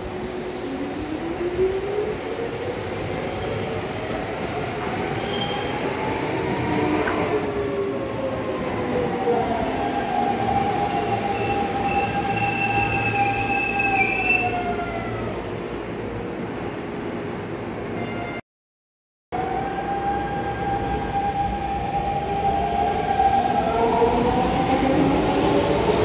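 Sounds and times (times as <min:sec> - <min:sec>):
train running over rails: 0:00.0 - 0:18.3
high brake squeal: 0:05.1 - 0:05.9, 0:11.3 - 0:14.6.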